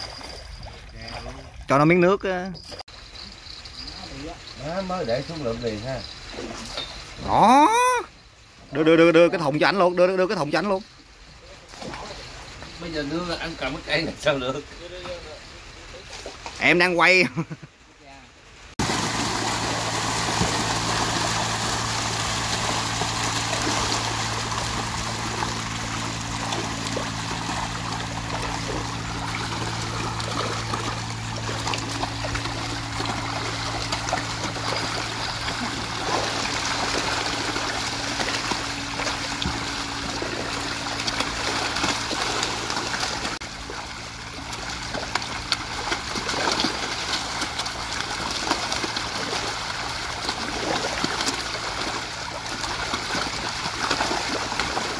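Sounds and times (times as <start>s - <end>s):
water trickling: 0.0s - 15.4s, 18.8s - 54.9s
low motor hum: 18.8s - 54.9s.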